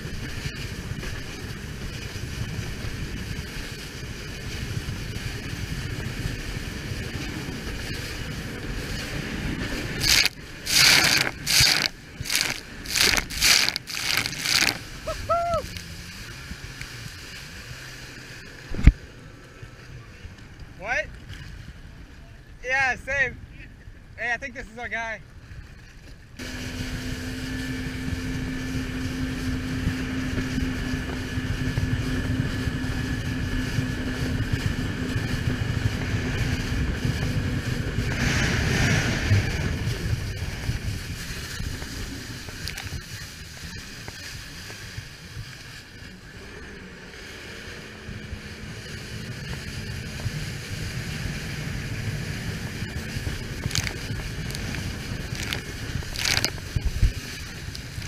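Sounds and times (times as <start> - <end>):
jet ski engine: 0.0 - 22.6, 26.4 - 58.0
loud rush of noise: 8.7 - 15.7, 37.5 - 43.0, 51.8 - 58.0
water against hull: 10.0 - 15.6, 38.0 - 43.8, 52.9 - 58.0
wind on microphone: 26.4 - 45.9, 47.8 - 58.0.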